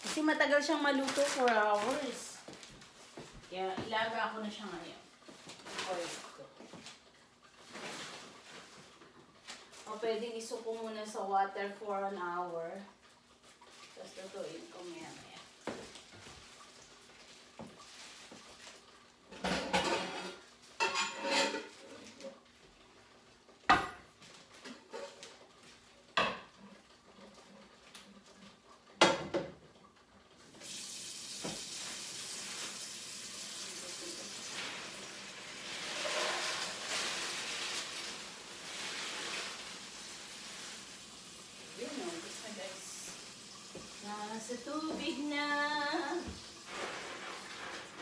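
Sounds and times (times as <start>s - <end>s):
pots and pans clattering: 19.3s - 22.4s, 23.6s - 25.5s, 26.1s - 26.8s, 28.9s - 29.8s, 34.4s - 40.0s
tap running into a pot: 31.3s - 31.8s.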